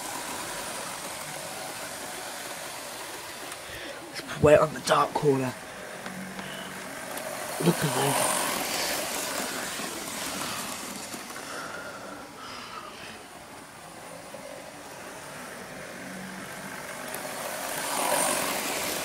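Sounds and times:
model train motor whirring: 0.0 - 19.0.

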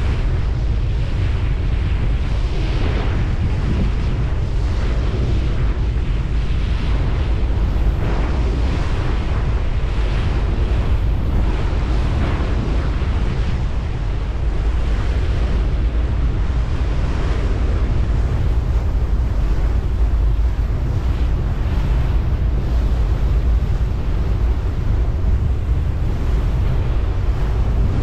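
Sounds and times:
water rushing alongside boat: 0.0 - 28.0
wind buffeting microphone: 0.0 - 28.0
low engine rumble: 10.3 - 28.0.

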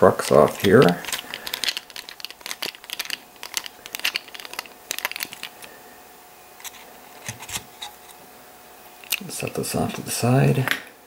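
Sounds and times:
screwdriver clicks and rattles: 0.5 - 5.5.

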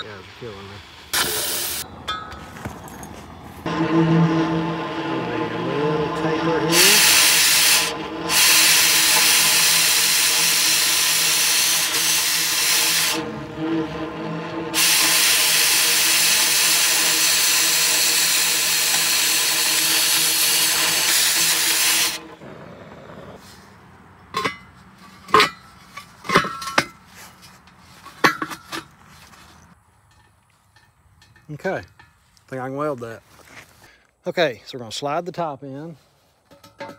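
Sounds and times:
cutting torch hissing: 0.0 - 1.8, 3.7 - 23.4.

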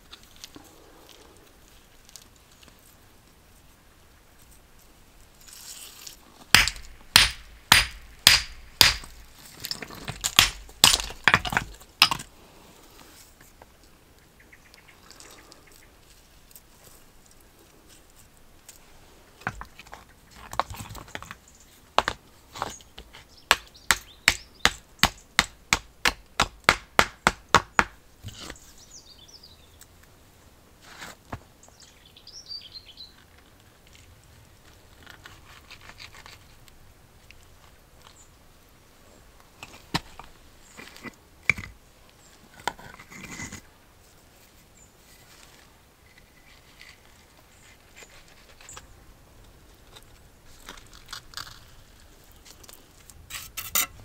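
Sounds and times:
stones clacking together: 6.4 - 12.3, 19.4 - 21.4, 22.0 - 28.6, 39.6 - 41.8.

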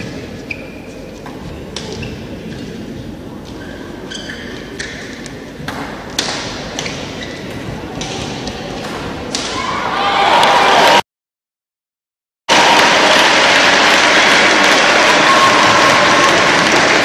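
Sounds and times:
racket striking shuttlecock: 5.6 - 9.6
crowd applause: 12.5 - 17.0.

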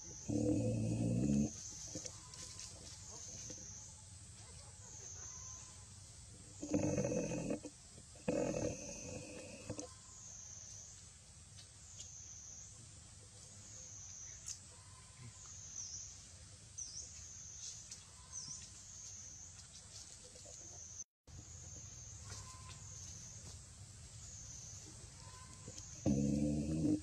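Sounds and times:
insect drone: 0.0 - 4.2, 5.1 - 11.1, 21.3 - 27.0.

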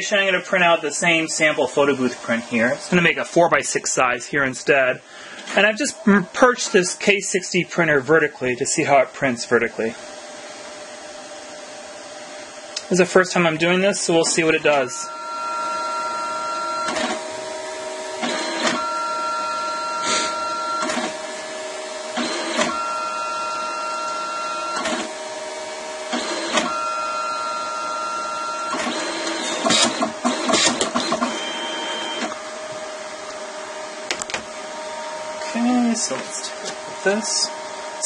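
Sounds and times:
printer motor hum: 5.4 - 8.8, 13.4 - 38.0
higher tone: 14.1 - 16.9
printer clunk: 16.8 - 17.2, 20.8 - 21.2, 26.2 - 26.8, 28.7 - 32.3.

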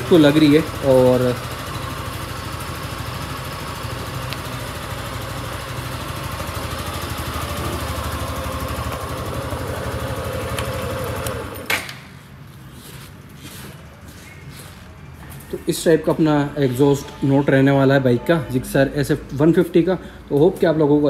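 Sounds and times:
motorcycle engine idling: 0.0 - 11.6.

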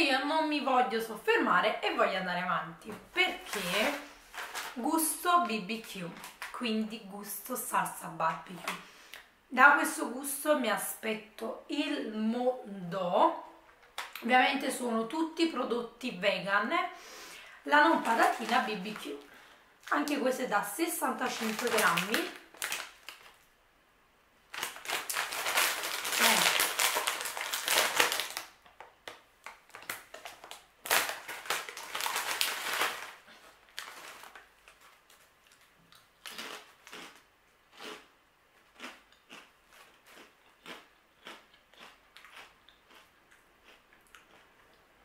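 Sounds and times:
plastic snack bag crinkling: 2.9 - 6.6, 17.7 - 20.3, 20.9 - 23.5, 24.5 - 43.0
crisp crunching: 3.3 - 5.2, 17.9 - 19.3, 21.2 - 23.4, 24.5 - 28.6, 29.4 - 44.5.

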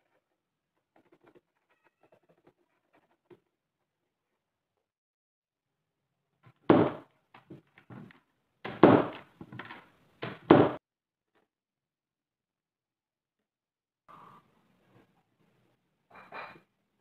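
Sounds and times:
wooden chest thudding on workbench: 6.7 - 7.0, 8.7 - 10.8.

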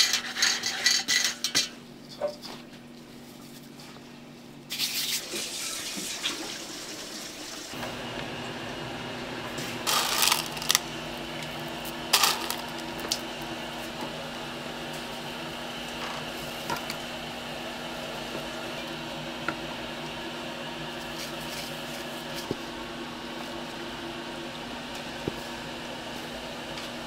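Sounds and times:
machine humming: 7.7 - 27.0.

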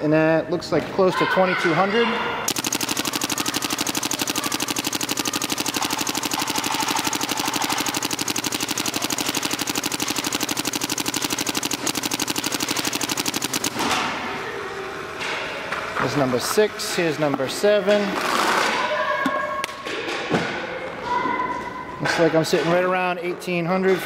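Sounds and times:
paintball marker rapid firing: 2.5 - 14.2.

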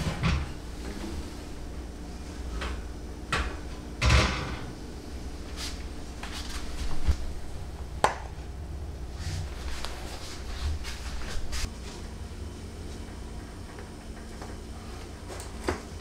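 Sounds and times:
kitchen knocks and clunks: 0.0 - 0.6, 2.6 - 4.7
low steady hum: 0.0 - 16.0.

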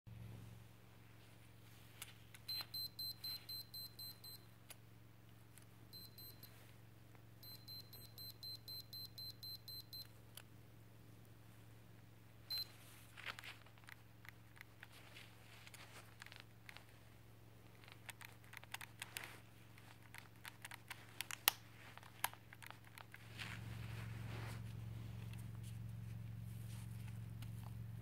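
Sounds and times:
low hum: 22.6 - 28.0.

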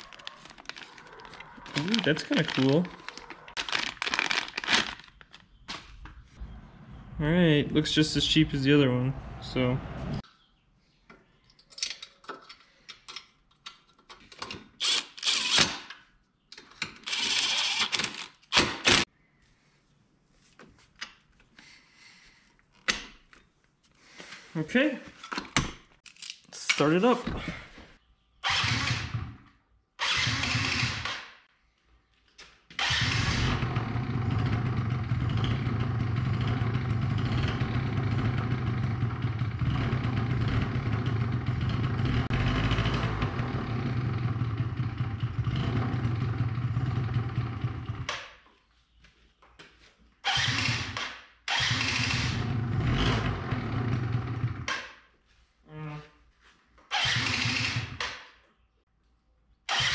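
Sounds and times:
scooter engine starting and running: 28.4 - 31.3, 32.7 - 48.3, 50.2 - 55.0, 56.9 - 58.4, 59.7 - 59.9.

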